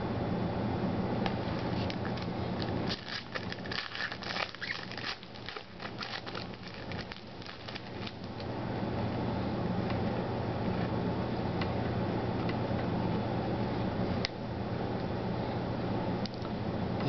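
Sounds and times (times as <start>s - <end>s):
foil wrapper crinkling and tearing: 1.6s - 8.5s.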